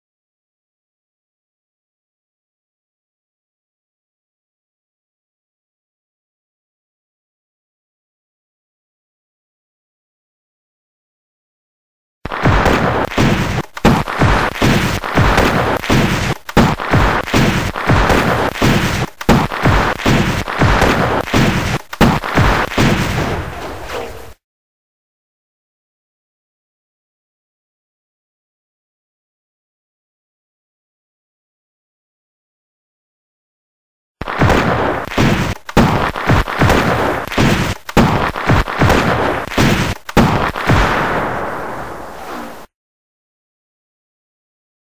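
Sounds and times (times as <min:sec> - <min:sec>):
gunshots with booming tail: 0:12.3 - 0:24.3, 0:34.2 - 0:42.7.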